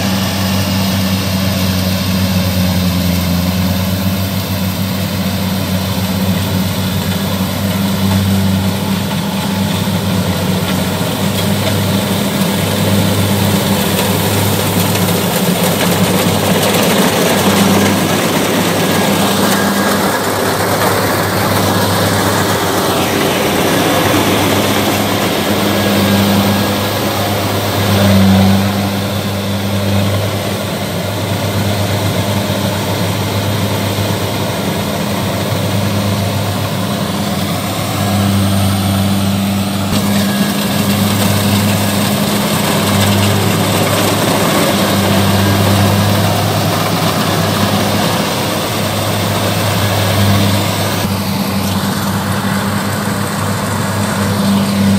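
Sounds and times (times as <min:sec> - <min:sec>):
diesel engine under load: 0:00.0 - 0:54.9
mechanical rush of threshing gear: 0:35.1 - 0:54.9.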